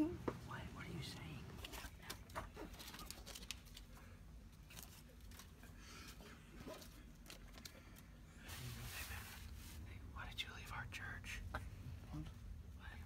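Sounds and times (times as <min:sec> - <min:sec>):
paper bills rustling: 0:01.6 - 0:05.7.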